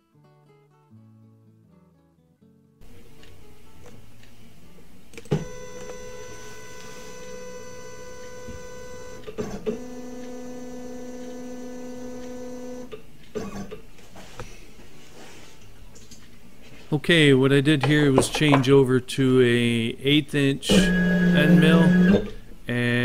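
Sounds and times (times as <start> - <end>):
click: 3.2 - 4.4, 5.1 - 6.0
stepper motor whine: 5.2 - 13.0, 20.7 - 22.4.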